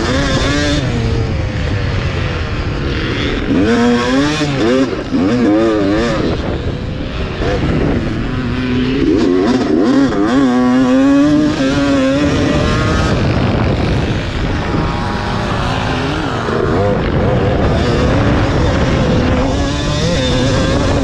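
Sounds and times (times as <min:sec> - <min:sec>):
two-stroke engine racing: 0:00.0 - 0:21.0.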